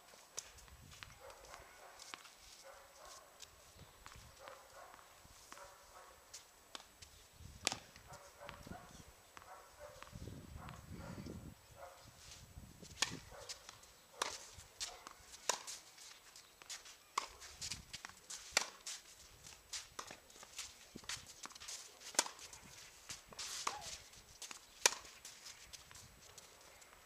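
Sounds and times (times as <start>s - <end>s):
tennis ball struck by rackets: 7.6s - 8.0s, 13.0s - 13.2s, 14.2s - 15.8s, 17.2s - 17.4s, 18.0s - 18.9s, 21.4s - 22.4s, 23.3s - 24.0s, 24.8s - 25.2s.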